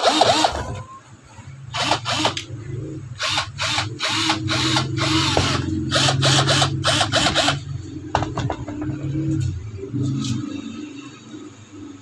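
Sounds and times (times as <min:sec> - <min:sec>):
cordless drill motor spinning: 0:00.0 - 0:00.6, 0:01.8 - 0:02.4, 0:03.2 - 0:07.6.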